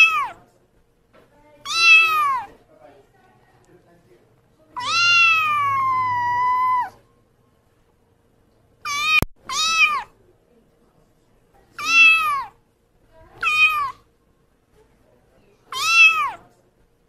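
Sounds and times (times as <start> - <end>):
kitten meowing: 0.0 - 0.4, 1.6 - 2.6, 4.8 - 7.0, 8.8 - 10.1, 11.8 - 12.6, 13.4 - 14.0, 15.7 - 16.4.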